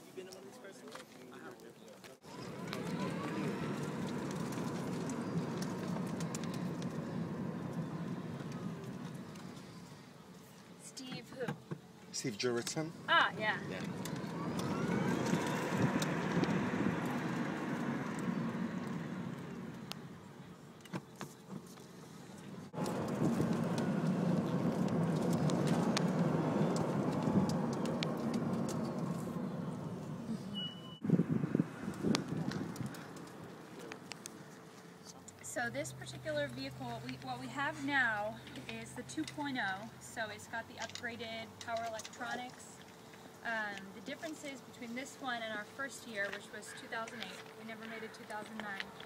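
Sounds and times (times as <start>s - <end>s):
road and tyre noise: 0.0s - 49.0s
electric motor whine: 2.3s - 9.9s, 13.1s - 20.0s
wind rushing over microphone: 13.6s - 20.4s, 22.5s - 33.7s.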